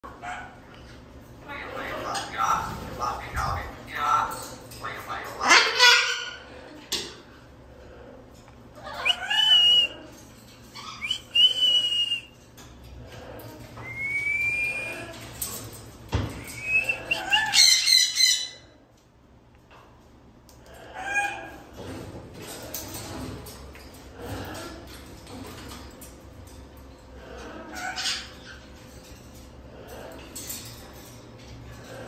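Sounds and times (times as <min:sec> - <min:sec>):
cockatoo squawking: 0:08.8 - 0:09.9, 0:10.8 - 0:12.2, 0:16.6 - 0:18.7.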